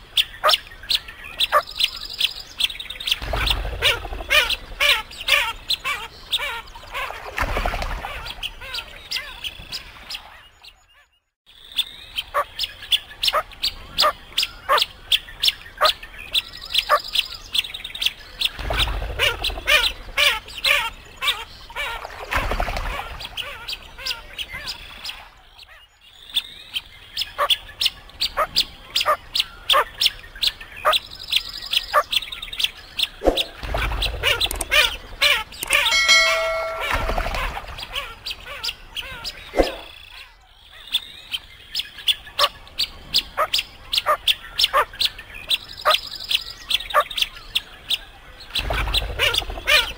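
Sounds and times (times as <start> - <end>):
bell-like chime: 35.6 - 37.6.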